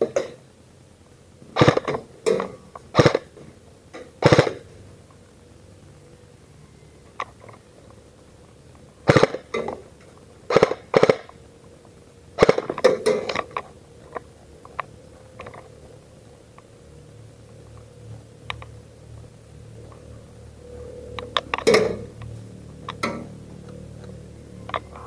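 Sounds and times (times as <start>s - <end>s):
airsoft guns firing bursts: 1.6s - 1.9s, 3.0s - 3.2s, 4.2s - 4.6s, 9.1s - 9.6s, 10.5s - 11.4s, 12.4s - 13.0s.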